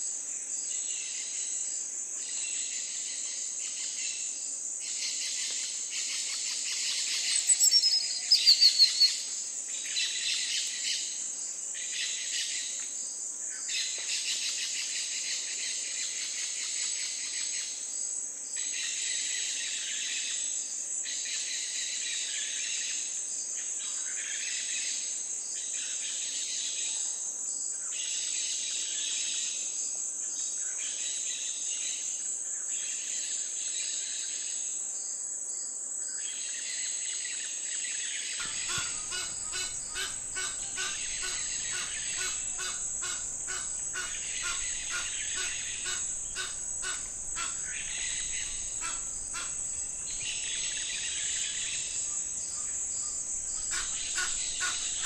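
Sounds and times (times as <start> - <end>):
high-pitched insect drone: 0.6 - 12.7, 36.3 - 55.0
birds chirping: 38.4 - 55.0.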